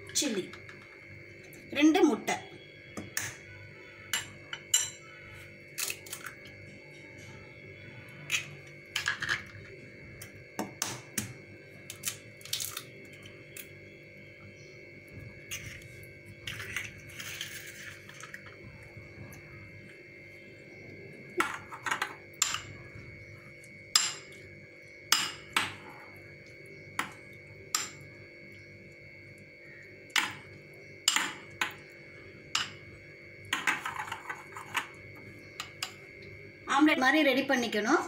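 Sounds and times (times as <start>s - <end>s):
faint high hum: 0.0s - 38.0s
spoon clinking against glass bowl: 4.1s - 5.2s, 27.0s - 28.1s, 32.6s - 32.8s.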